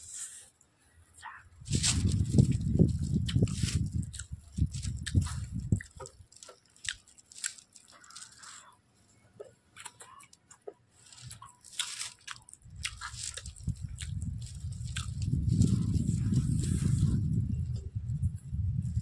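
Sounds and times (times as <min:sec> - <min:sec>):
wet chewing with mouth clicks: 0:01.9 - 0:08.7, 0:09.4 - 0:17.4.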